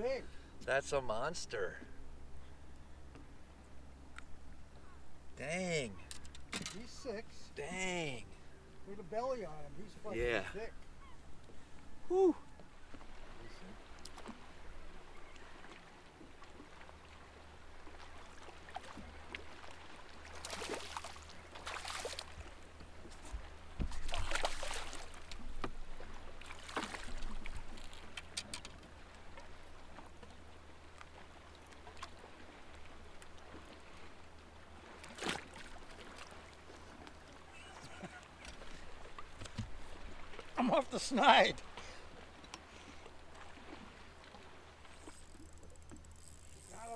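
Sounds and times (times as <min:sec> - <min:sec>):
water splashing beside boat: 0:00.0 - 0:46.9.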